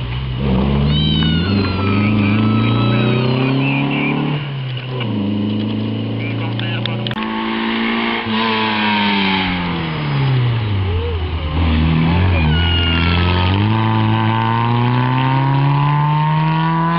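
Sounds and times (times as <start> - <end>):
car engine revving: 0.0 - 16.9.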